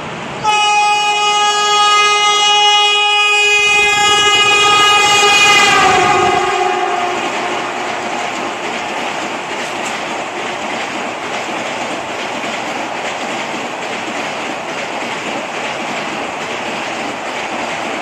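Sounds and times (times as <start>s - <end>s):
train coaches rushing on rails: 0.0s - 18.0s
train horn blast: 0.4s - 8.6s.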